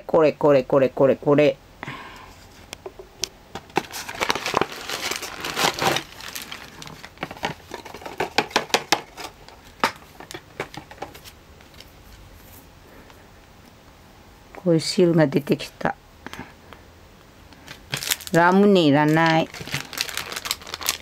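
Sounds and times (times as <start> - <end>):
plastic packaging crinkling: 3.6 - 12.0, 17.6 - 21.0.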